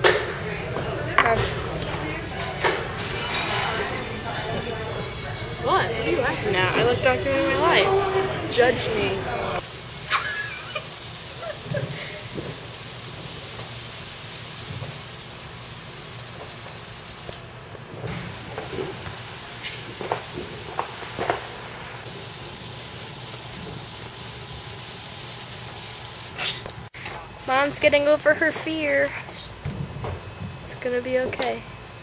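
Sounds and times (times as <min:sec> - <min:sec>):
sparklers fizzing: 0:05.6 - 0:26.7.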